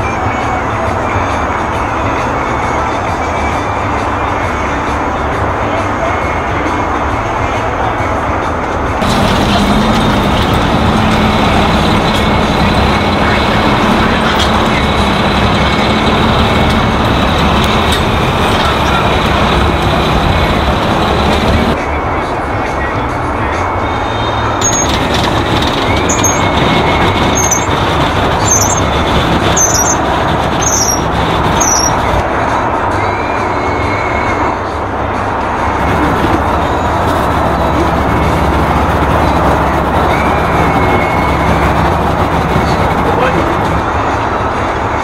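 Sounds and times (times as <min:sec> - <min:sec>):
truck diesel engine rumbling: 0:00.0 - 0:45.0
high chirp: 0:24.6 - 0:24.9, 0:26.0 - 0:27.8, 0:28.4 - 0:32.0.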